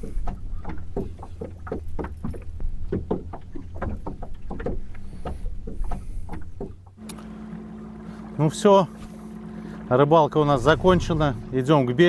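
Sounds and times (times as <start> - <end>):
waves slapping against boat hull: 0.0 - 12.0
wind rumble on microphone: 10.4 - 12.0.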